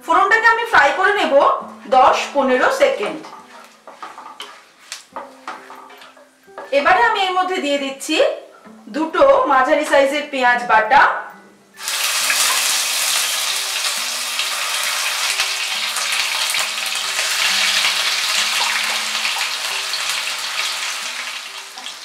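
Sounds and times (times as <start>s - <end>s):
spoon stirring paste: 3.0s - 6.7s
paste sizzling in hot oil: 11.8s - 22.0s.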